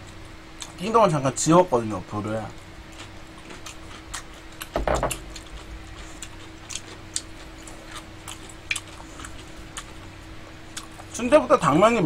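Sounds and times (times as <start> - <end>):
faint steady hum: 0.0 - 12.0
eating clicks and smacks: 2.6 - 10.1, 10.7 - 11.2.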